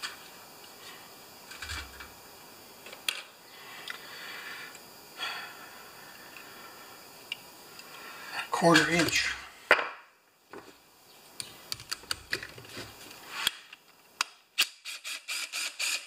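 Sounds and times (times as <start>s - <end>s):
small parts clicking and tapping: 11.4s - 12.8s.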